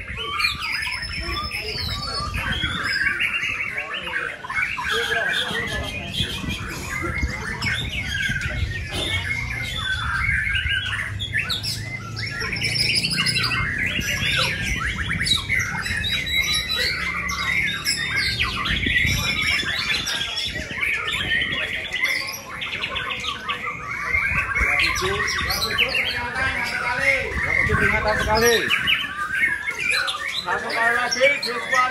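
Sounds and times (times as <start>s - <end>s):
songbirds singing: 0.0s - 31.9s.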